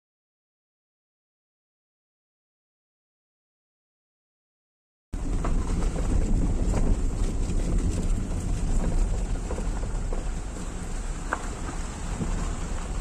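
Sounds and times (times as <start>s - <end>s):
wind buffeting microphone: 5.2s - 13.0s.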